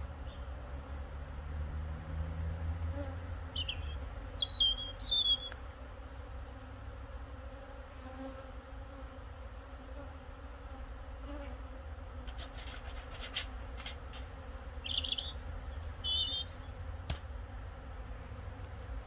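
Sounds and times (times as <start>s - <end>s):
bees buzzing: 0.0s - 19.0s
clicks and scraping of hive frame: 12.2s - 14.4s, 17.1s - 17.4s.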